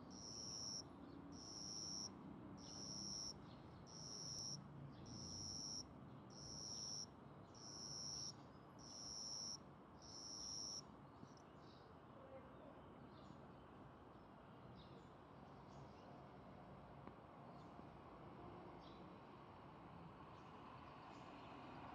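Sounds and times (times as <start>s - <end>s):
cricket chirping: 0.0s - 10.9s.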